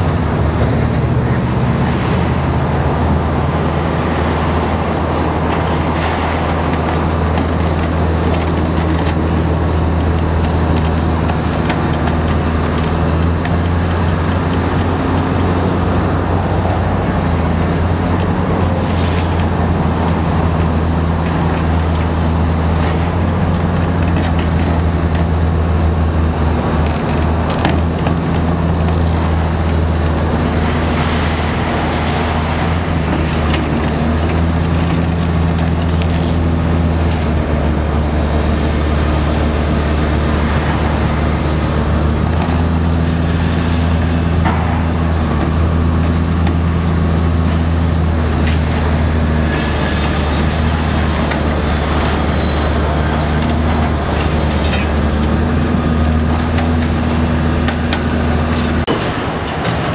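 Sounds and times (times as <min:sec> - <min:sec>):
diesel engine running under load: 0:00.0 - 0:59.9.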